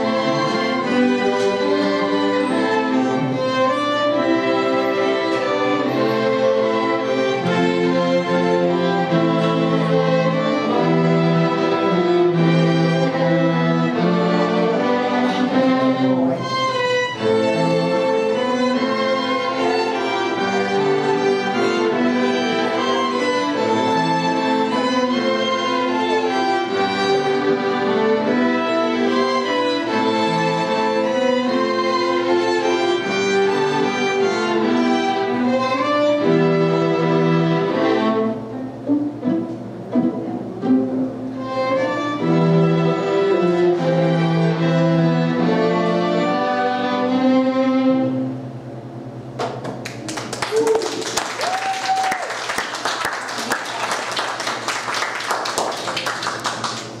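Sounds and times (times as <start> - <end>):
violin ensemble playing: 0.0 - 49.4
audience applause: 49.4 - 57.0.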